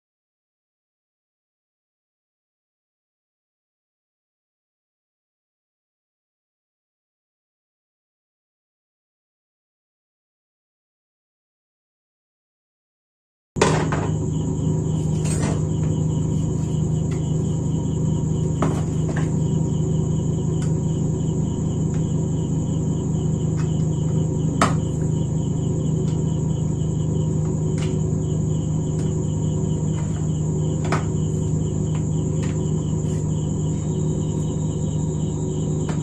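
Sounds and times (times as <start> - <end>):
steady low hum: 13.6 - 36.0
pulsing high-pitched chirping: 14.0 - 36.0.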